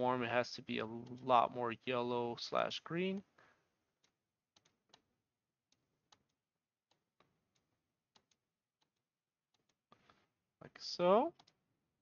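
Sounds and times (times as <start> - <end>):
computer mouse clicks: 4.0 - 5.1, 5.7 - 10.3, 11.2 - 11.6.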